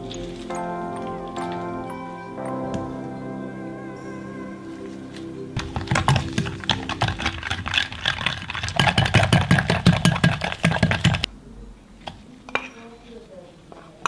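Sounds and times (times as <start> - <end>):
whisk rattling in glass bowl: 6.3 - 11.2.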